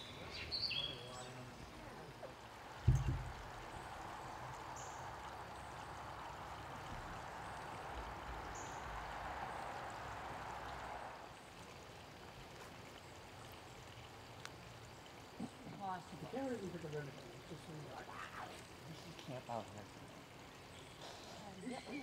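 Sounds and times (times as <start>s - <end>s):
low thump: 2.8s - 3.6s.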